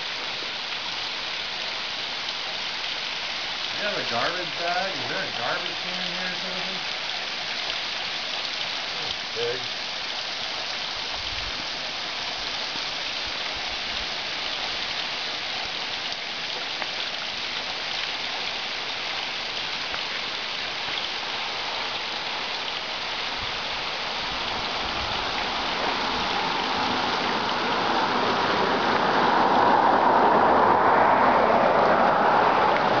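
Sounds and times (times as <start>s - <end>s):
water trickling and splashing: 0.0s - 33.0s.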